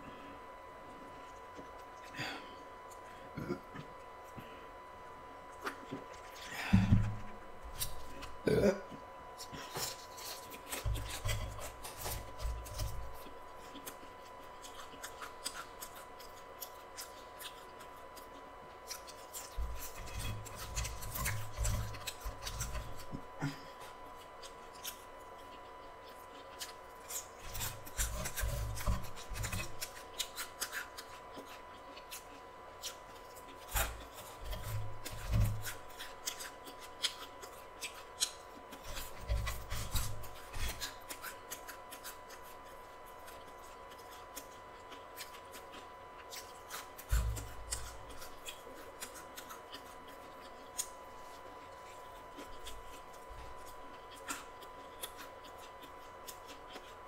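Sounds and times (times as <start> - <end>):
chewing and crunching food: 0.0 - 57.0.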